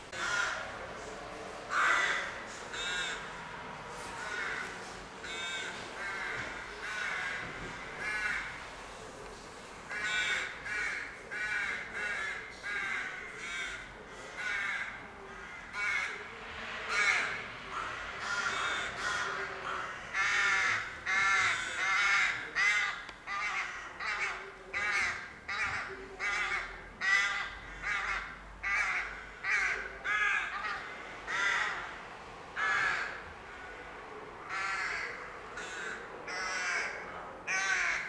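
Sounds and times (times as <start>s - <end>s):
rooks cawing: 0.1s - 0.8s, 1.7s - 3.4s, 4.2s - 8.6s, 9.9s - 16.2s, 16.9s - 32.0s, 32.6s - 33.8s, 34.4s - 38.0s.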